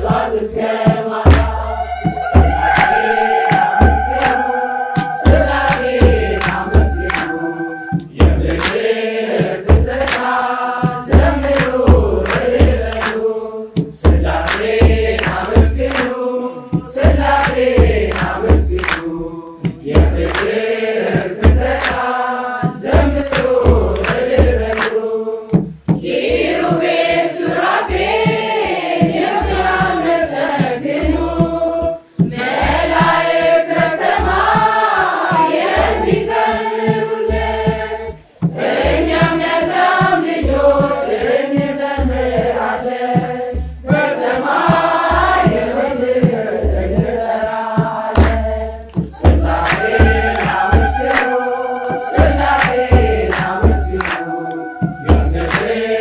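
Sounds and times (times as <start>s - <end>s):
drum beating: 0.0s - 56.0s
mixed choir singing a hymn: 0.0s - 56.0s
hand claps: 1.3s - 26.0s, 48.1s - 56.0s.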